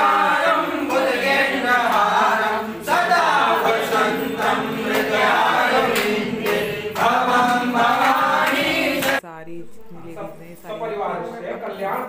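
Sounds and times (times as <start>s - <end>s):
group singing devotional chant: 0.0s - 9.2s.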